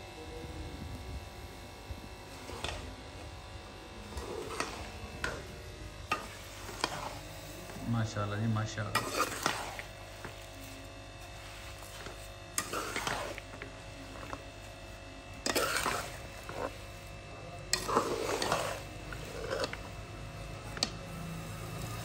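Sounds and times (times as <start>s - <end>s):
steady low hum: 0.0s - 22.0s
ladle scraping pot: 2.4s - 3.0s, 4.0s - 7.8s, 8.8s - 14.5s, 15.4s - 17.0s, 17.7s - 20.0s.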